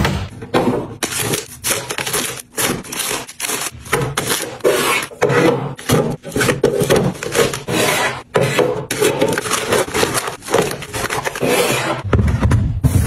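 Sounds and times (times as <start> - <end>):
plastic pouches rustling: 1.0 - 5.1, 8.9 - 11.8.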